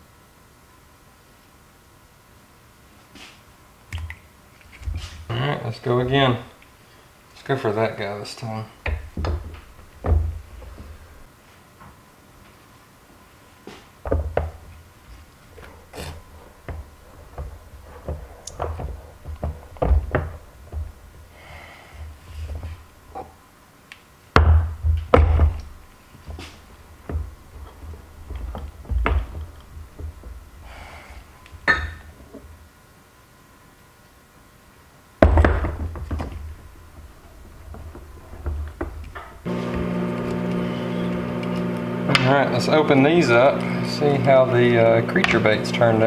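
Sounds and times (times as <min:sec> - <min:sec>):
metal knocks and clunks: 0:15.4 - 0:21.2.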